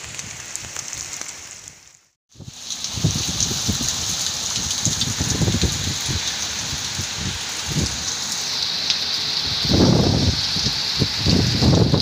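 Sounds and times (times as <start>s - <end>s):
heavy rain pouring: 0.0s - 12.0s
wind gusts on microphone: 2.3s - 8.1s, 9.4s - 12.0s.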